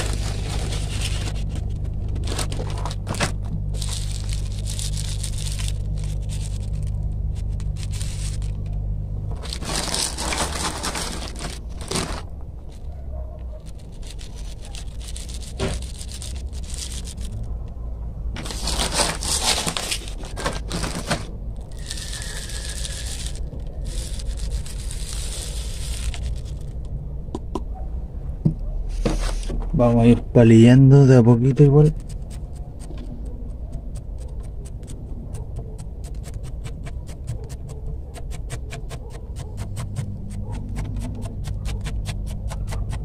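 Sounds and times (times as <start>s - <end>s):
scoop scraping gravel: 0.0s - 8.6s, 9.3s - 12.9s, 13.6s - 17.5s, 18.4s - 26.8s
gravel pouring into plastic pot: 3.7s - 8.7s, 9.4s - 12.8s, 13.6s - 17.4s, 18.4s - 26.8s.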